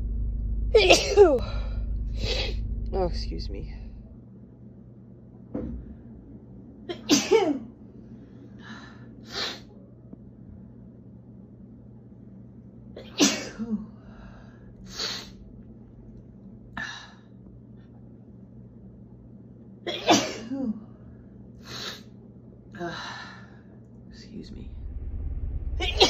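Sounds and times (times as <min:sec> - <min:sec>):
quiet breaths: 0:13.8 - 0:15.4.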